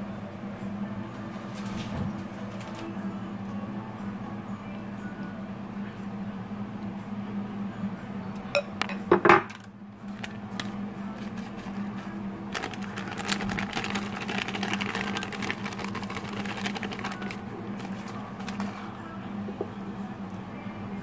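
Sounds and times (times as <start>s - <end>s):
steady low hum: 0.0s - 21.0s
utensils clinking against dishes: 8.6s - 9.6s
grated cheese rustling: 10.0s - 19.0s.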